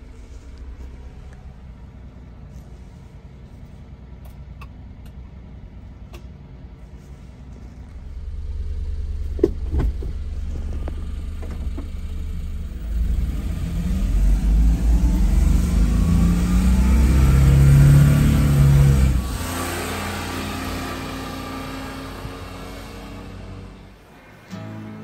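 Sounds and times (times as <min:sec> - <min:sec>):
small truck engine revving: 0:08.2 - 0:24.9.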